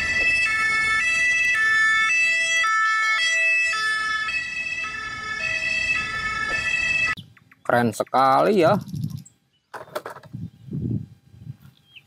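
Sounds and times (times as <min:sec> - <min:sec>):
two-tone ambulance siren: 0:00.0 - 0:07.2.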